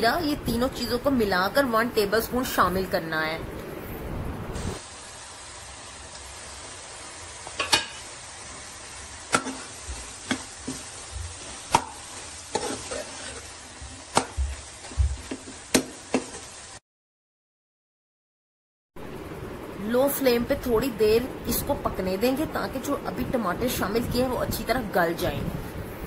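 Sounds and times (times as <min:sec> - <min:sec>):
meat sizzling in oil: 0:04.6 - 0:16.8
spoon clinking and scraping pan: 0:12.1 - 0:13.5.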